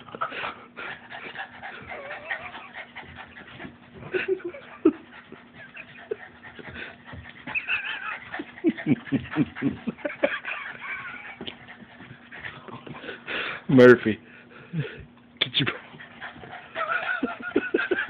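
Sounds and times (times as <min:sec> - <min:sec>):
dog whining and panting: 0:00.0 - 0:13.3, 0:15.8 - 0:18.0
high wavering dog whine: 0:01.6 - 0:03.5, 0:05.4 - 0:08.7.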